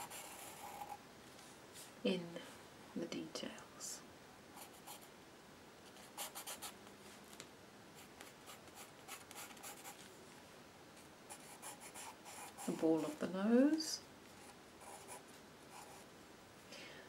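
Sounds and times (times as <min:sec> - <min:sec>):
pencil scratching on paper: 0:00.0 - 0:01.0, 0:06.0 - 0:06.7, 0:08.0 - 0:10.0, 0:11.3 - 0:13.2, 0:14.4 - 0:16.0.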